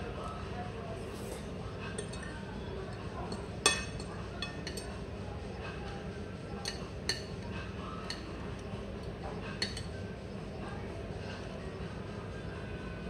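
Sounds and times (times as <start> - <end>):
low room hum: 0.0 - 13.0
cutlery clinking on ceramic plate: 2.0 - 2.4, 3.3 - 5.0, 6.6 - 7.4, 9.6 - 9.9.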